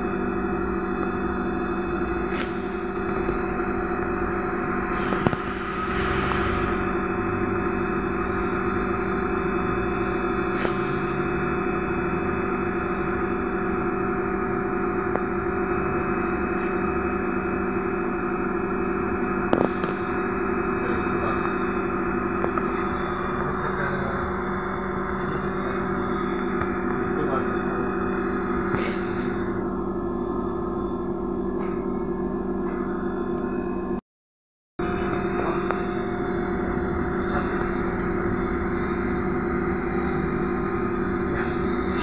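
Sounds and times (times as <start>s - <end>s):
low rumble: 0.0s - 32.4s
electrical hum: 0.0s - 34.0s, 34.8s - 42.0s.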